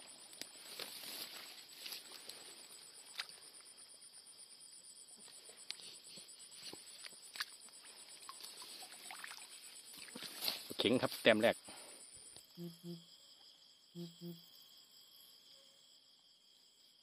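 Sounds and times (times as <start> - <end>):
wet grass and water rustling: 0.0 - 4.6, 5.2 - 11.6
night insects trilling: 0.0 - 17.0.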